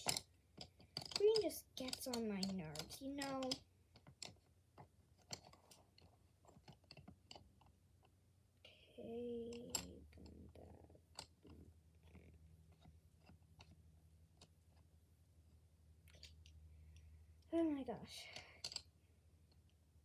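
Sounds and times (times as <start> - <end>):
pencils clicking together: 0.0 - 8.1, 18.3 - 18.9.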